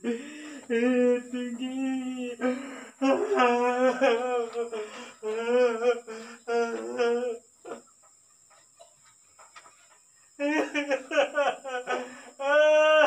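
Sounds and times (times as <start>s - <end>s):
person humming a tune: 0.0s - 7.8s.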